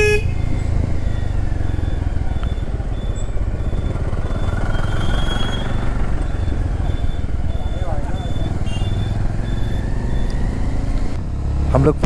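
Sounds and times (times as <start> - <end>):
motorcycle horn beep: 0.0 - 0.5, 6.8 - 9.7
motorcycle engine running: 0.0 - 12.0
wind and road noise: 0.0 - 12.0.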